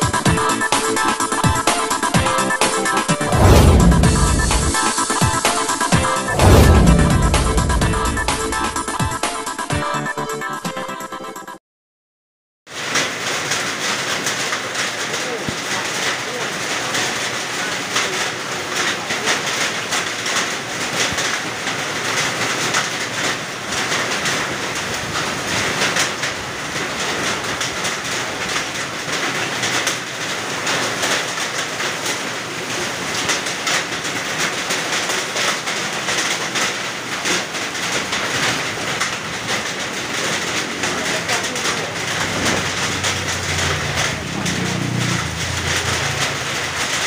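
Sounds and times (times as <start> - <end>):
heavy rain: 0.0 - 9.2, 12.7 - 47.0
hailstones clattering: 12.8 - 47.0.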